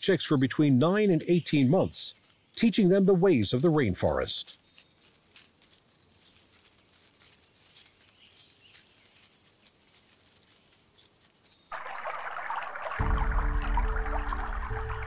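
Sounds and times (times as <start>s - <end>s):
rustling in dry leaves: 0.7s - 15.0s
shallow stream rushing: 11.7s - 15.0s.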